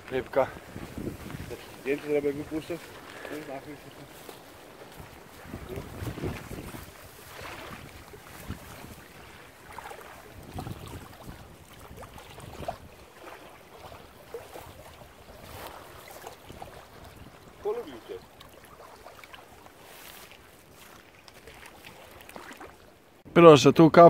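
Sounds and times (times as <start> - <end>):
wind buffeting microphone: 0.0 - 18.4
fish splashing in water: 4.4 - 23.2.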